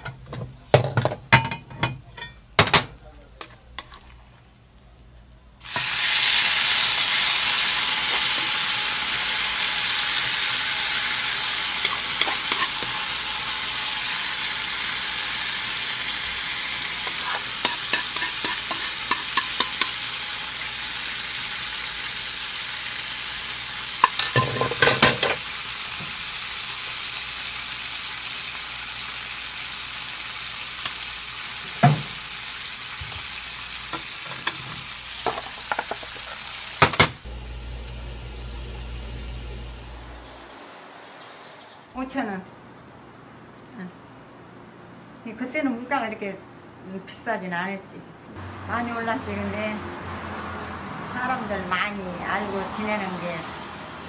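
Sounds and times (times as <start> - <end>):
food sizzling on hot pan: 5.6 - 42.0
spatula clinking against pan: 17.1 - 20.0.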